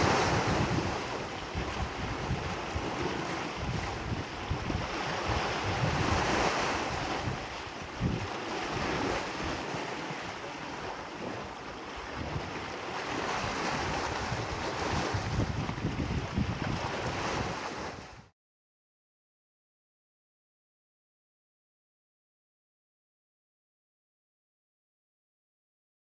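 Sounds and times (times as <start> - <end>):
ocean waves surging: 0.0 - 18.2
wind buffeting microphone: 0.0 - 18.3.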